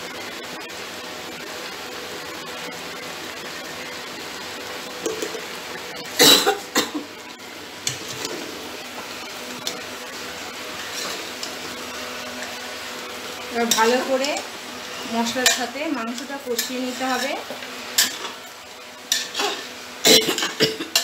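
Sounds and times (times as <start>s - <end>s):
food frying hiss: 0.0s - 21.0s
person coughing: 6.2s - 7.1s, 20.0s - 21.0s.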